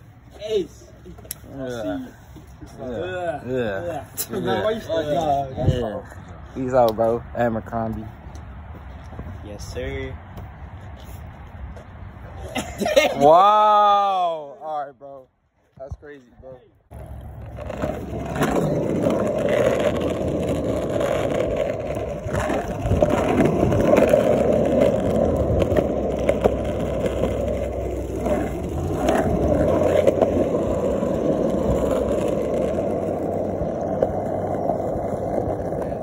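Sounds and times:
longboard wheels rolling on asphalt: 0.0 - 13.0, 16.9 - 36.0.

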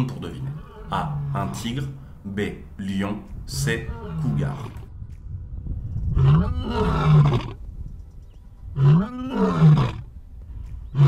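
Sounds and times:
lion roaring: 0.3 - 1.8, 3.8 - 4.9, 6.2 - 7.6, 8.8 - 10.1.

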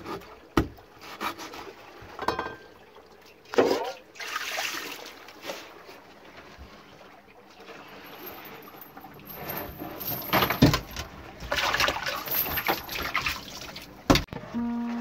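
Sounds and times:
water splashing into colander: 2.1 - 5.8, 10.0 - 14.3.

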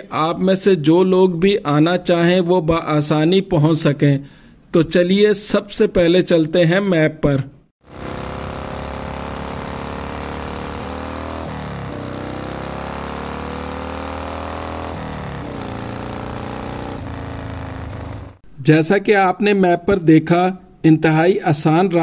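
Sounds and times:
motorcycle engine accelerating: 7.8 - 18.4.

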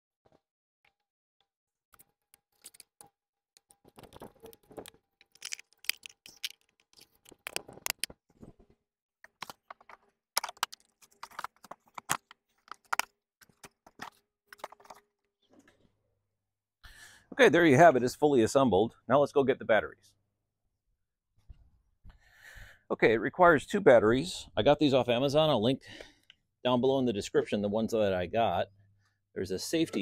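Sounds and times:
plastic parts clicking and knocking: 1.9 - 15.8.

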